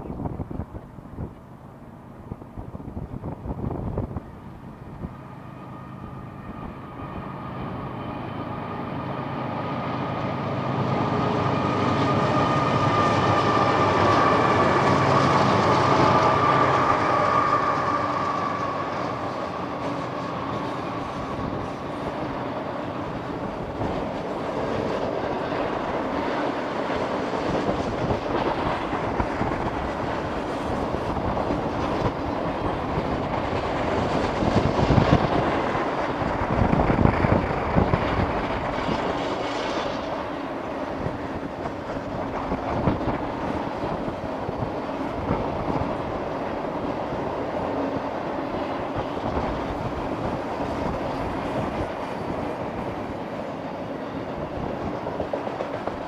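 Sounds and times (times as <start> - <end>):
diesel locomotive engines: 0.0 - 56.0.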